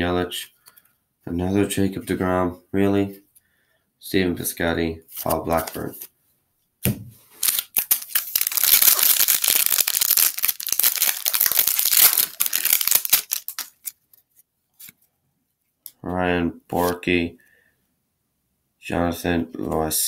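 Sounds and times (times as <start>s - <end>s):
foil wrapper tearing and crinkling: 7.4s - 14.2s.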